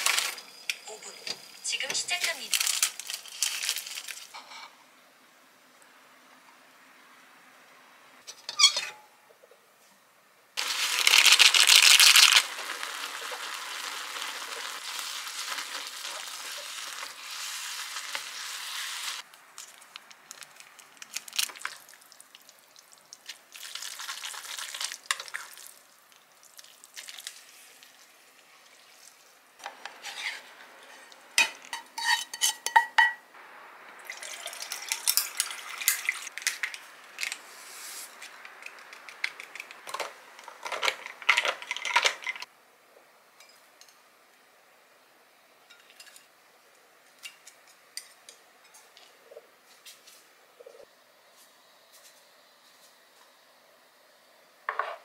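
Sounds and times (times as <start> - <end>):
noodles sizzling in a saucepan: 0.0 - 4.5, 10.6 - 42.5
tableware clinking: 30.9 - 33.2.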